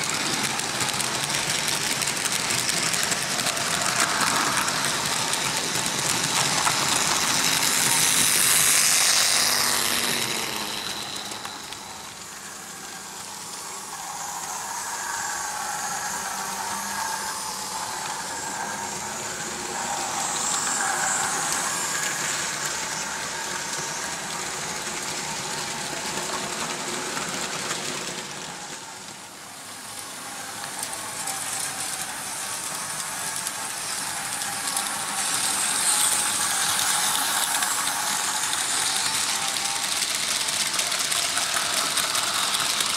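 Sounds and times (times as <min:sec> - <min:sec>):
model locomotive motors whirring: 0:00.0 - 0:42.9
wheels rattling over rails: 0:00.0 - 0:42.9.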